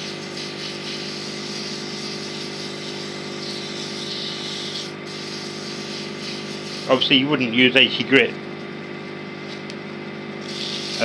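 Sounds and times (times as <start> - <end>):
sandpaper hissing on spinning wood: 0.0 - 7.4, 10.4 - 11.0
wood lathe motor humming: 0.0 - 9.0, 10.2 - 11.0.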